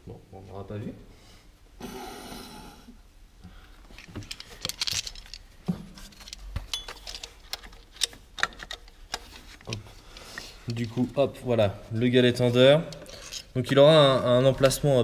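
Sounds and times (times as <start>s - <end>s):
small metallic clicks and clinks: 3.9s - 5.5s, 6.1s - 11.0s, 12.9s - 13.8s.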